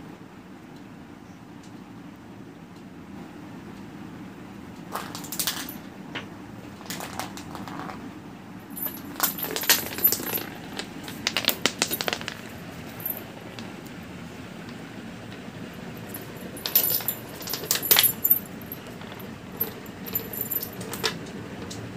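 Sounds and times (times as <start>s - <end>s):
toy ball jingling on concrete: 8.7s - 13.4s, 16.0s - 21.1s.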